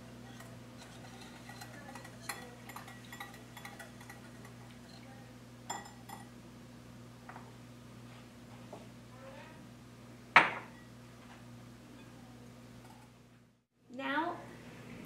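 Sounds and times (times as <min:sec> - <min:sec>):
wire whisk clinking in glass bowl: 0:00.2 - 0:05.1, 0:05.7 - 0:06.3.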